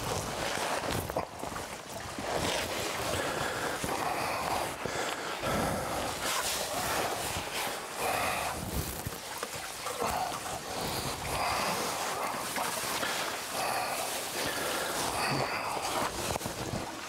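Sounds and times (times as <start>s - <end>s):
suit rustling and scraping on rock: 0.0s - 17.0s.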